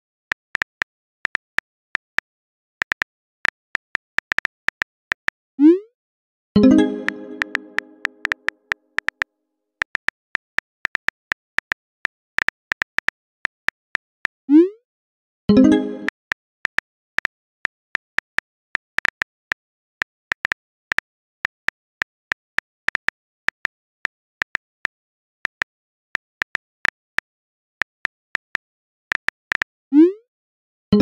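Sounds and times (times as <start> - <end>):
smartphone keyboard clicks: 7.0 - 9.2.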